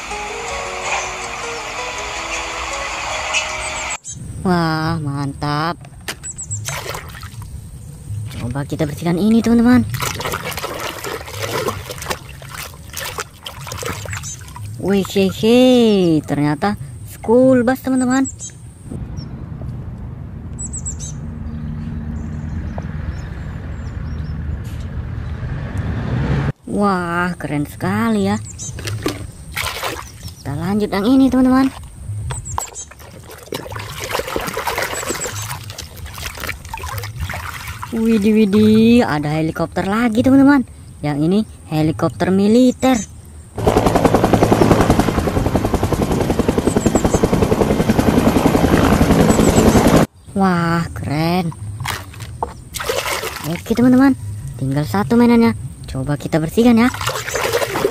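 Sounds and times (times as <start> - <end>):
bus engine driving by: 19.0 - 26.6
helicopter rotor beating: 43.6 - 50.1.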